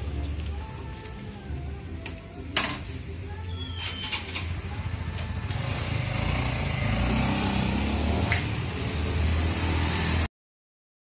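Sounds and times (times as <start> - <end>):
motorcycle engine accelerating: 4.1 - 10.3.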